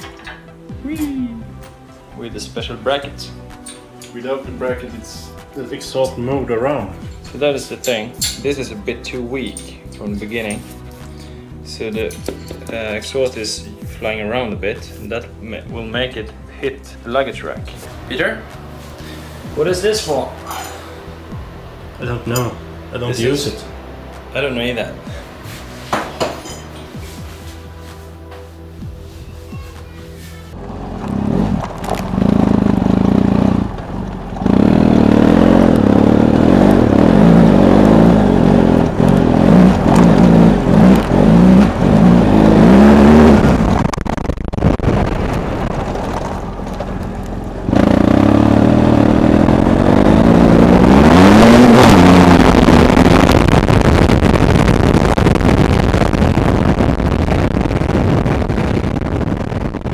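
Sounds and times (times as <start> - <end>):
motorcycle engine revving: 30.5 - 59.9.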